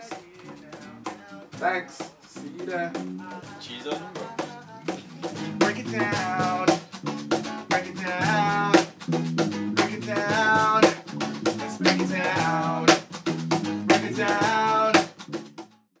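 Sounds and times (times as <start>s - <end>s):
man singing: 0.0s - 6.9s, 7.6s - 8.9s, 9.8s - 11.1s, 11.7s - 13.0s, 13.8s - 15.1s
percussion hits: 0.0s - 15.7s
acoustic guitar: 0.0s - 15.8s
electric bass: 4.9s - 15.6s.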